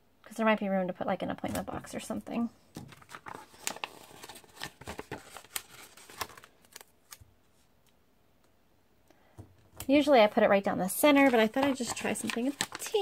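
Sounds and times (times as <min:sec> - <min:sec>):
sticker sheets clicking and rustling: 0:11.1 - 0:13.0.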